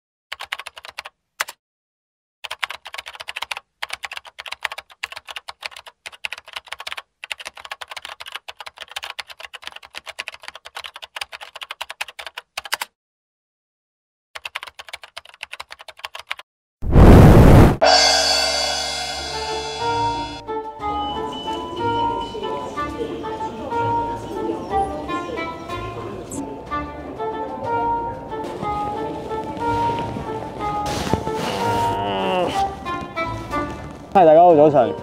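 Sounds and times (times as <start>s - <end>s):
keyboard typing: 0.3s - 1.6s, 2.4s - 12.9s, 14.4s - 16.4s.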